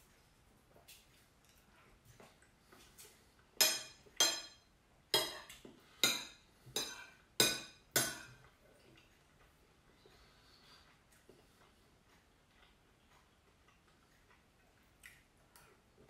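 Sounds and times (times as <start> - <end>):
spoon clinking on ceramic bowl: 3.6 - 4.6.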